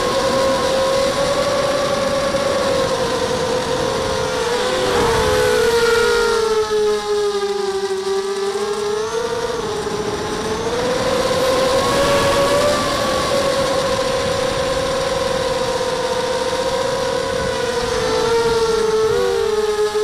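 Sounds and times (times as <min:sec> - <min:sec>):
drone motors whining: 0:00.0 - 0:20.0.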